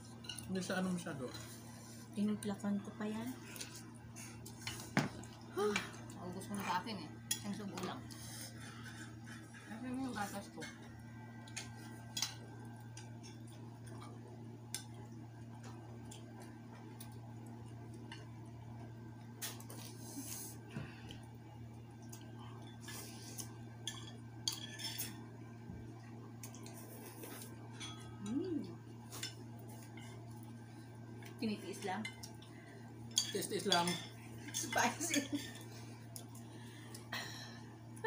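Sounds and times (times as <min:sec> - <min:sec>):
steady low hum: 0:00.0 - 0:38.0
cutlery clinking against bowls: 0:23.8 - 0:25.2, 0:27.4 - 0:28.2, 0:33.1 - 0:35.6.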